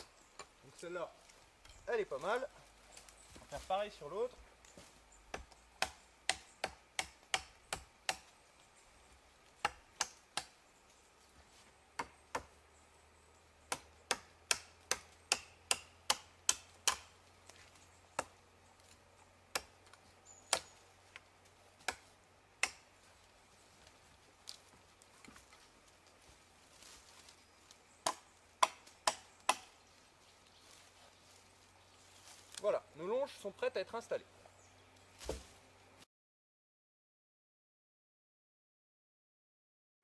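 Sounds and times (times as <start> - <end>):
blade chopping wooden pole: 13.7 - 17.1, 18.2 - 18.4, 19.5 - 20.7, 22.6 - 22.8, 28.0 - 29.8.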